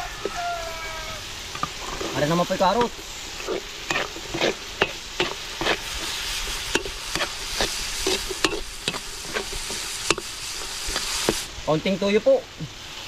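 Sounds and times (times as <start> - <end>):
vegetables sizzling in oil: 0.0 - 13.0
spatula scraping a wok: 1.4 - 11.5.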